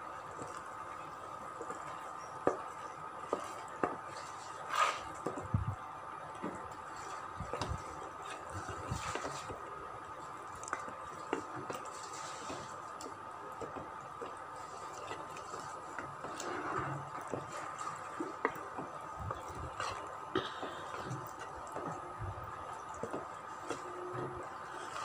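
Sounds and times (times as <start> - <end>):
faint hum: 0.0 - 25.0
spatula squelching and scraping: 3.3 - 5.4, 22.8 - 25.0.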